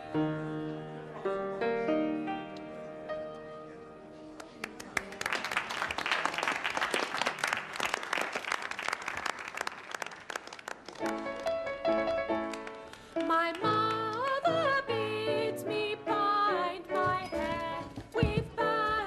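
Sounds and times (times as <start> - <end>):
piano piece: 0.0 - 5.1, 11.0 - 19.0
small group clapping: 4.4 - 14.4.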